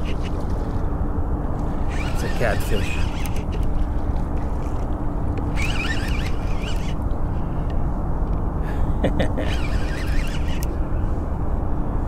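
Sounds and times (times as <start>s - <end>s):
low rushing background noise: 0.0s - 12.0s.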